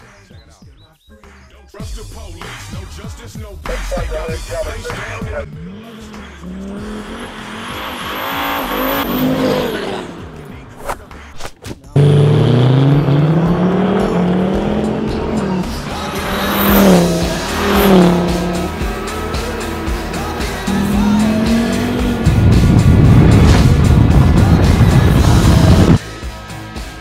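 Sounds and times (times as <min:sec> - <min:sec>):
engine accelerating: 0:03.8 - 0:11.3, 0:12.0 - 0:26.0
car passing at full throttle: 0:05.5 - 0:10.8, 0:12.0 - 0:26.0.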